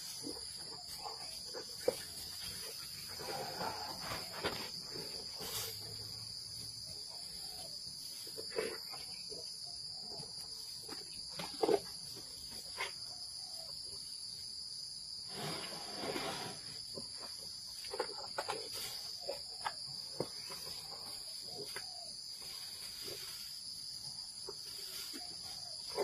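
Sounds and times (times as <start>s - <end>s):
elephant crunching food: 0.0s - 7.4s, 8.2s - 9.4s, 10.2s - 13.0s, 15.3s - 23.3s
high-pitched insect chorus: 0.0s - 26.0s.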